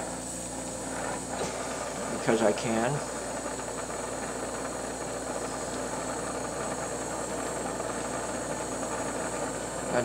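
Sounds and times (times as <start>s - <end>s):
torch flame hissing: 0.0s - 10.0s.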